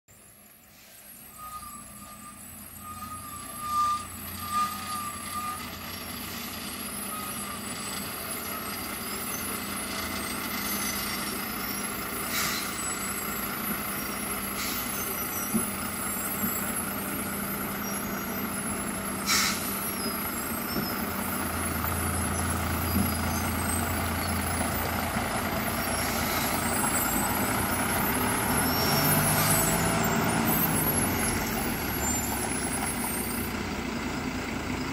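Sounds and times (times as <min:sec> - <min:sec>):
lorry diesel engine: 0:00.1 - 0:34.9
air brake hisses: 0:00.6 - 0:02.3, 0:12.2 - 0:13.0, 0:14.5 - 0:15.2, 0:19.2 - 0:19.8, 0:26.0 - 0:26.9
brief tones: 0:01.1 - 0:05.8.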